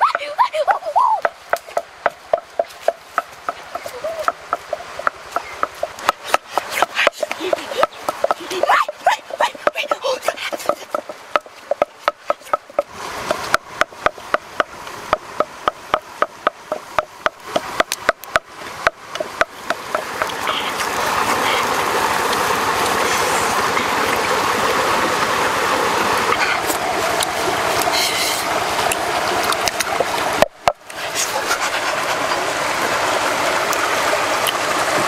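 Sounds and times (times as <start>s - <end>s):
pestle knocking in wooden mortar: 1.2s - 20.4s.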